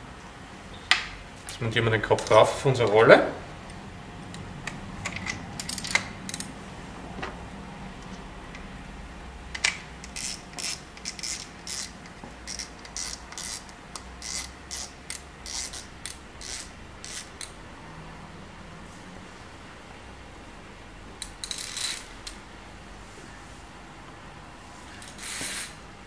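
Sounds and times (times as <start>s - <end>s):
spinning reel ratcheting clicks: 5.0s - 6.5s, 9.6s - 17.6s, 21.2s - 22.4s, 25.0s - 25.7s.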